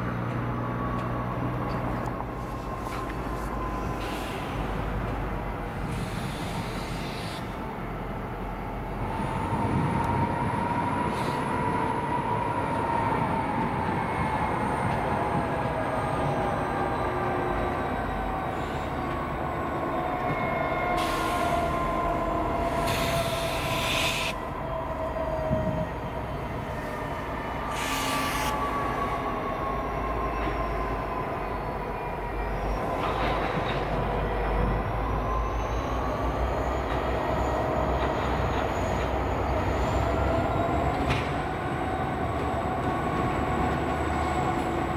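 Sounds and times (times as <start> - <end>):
diesel locomotive rumble: 0.0 - 44.9
train wheels squealing: 14.3 - 42.7.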